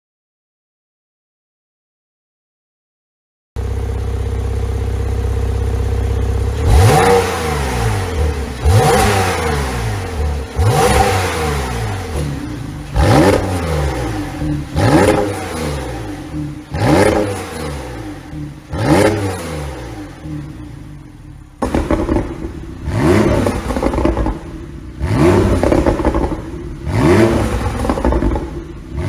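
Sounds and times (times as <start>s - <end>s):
car engine idling and revving: 3.6s - 29.0s
exhaust pops and crackles: 21.6s - 26.7s, 27.3s - 28.8s.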